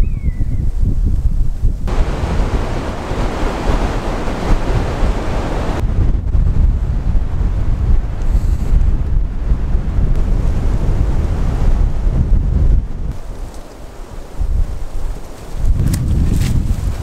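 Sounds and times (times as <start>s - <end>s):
wind buffeting microphone: 0.0s - 17.0s
wind rushing through treetops: 0.0s - 17.0s.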